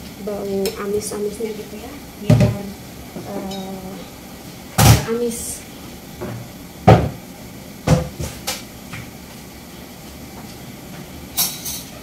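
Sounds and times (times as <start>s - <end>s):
kitchen items knocking and clattering: 2.3s - 2.7s, 6.2s - 7.2s, 7.8s - 8.6s.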